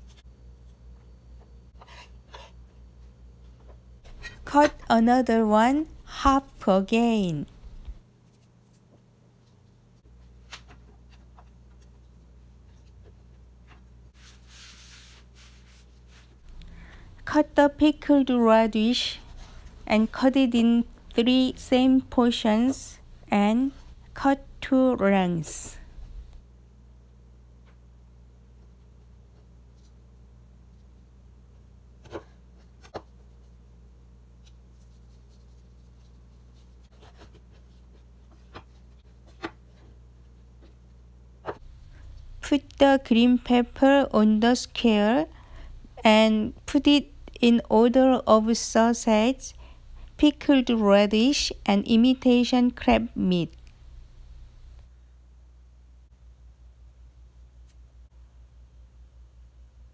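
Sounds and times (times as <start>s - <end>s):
low steady hum: 0.0s - 59.9s
paper towel rubbing board: 14.2s - 16.4s.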